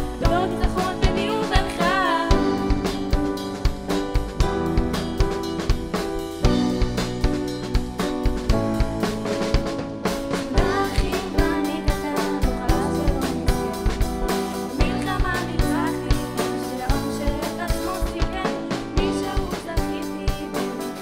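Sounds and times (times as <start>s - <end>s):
backing vocalist singing: 0.0s - 3.3s, 10.5s - 21.0s
woman singing lead: 0.0s - 4.0s, 10.4s - 21.0s
rock band playing live: 0.0s - 21.0s.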